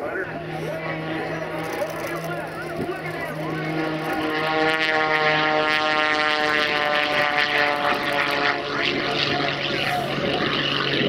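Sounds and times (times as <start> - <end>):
propeller plane engine: 0.0 - 11.0.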